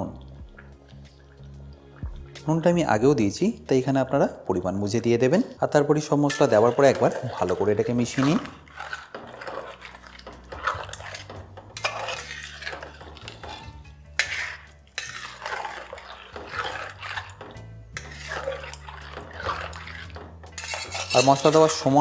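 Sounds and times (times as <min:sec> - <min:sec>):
metal spatula scraping pot: 0:05.0 - 0:22.0.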